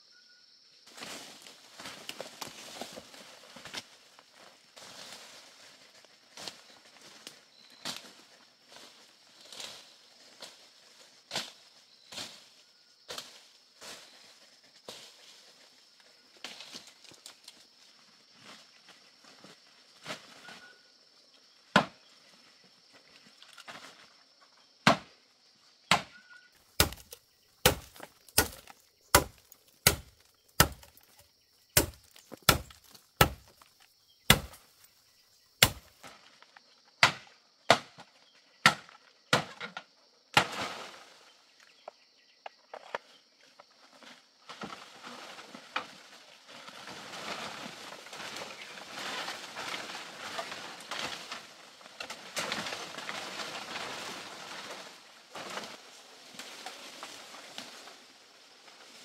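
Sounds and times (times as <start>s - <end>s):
rustling through foliage: 0.8s - 24.7s, 26.2s - 36.8s, 43.0s - 59.0s
machete chopping bamboo: 24.8s - 25.1s, 25.9s - 26.1s, 26.8s - 31.2s, 31.8s - 33.6s, 34.3s - 34.6s, 35.6s - 36.0s, 37.0s - 37.9s, 38.6s - 39.7s
leaves swishing: 46.6s - 59.0s.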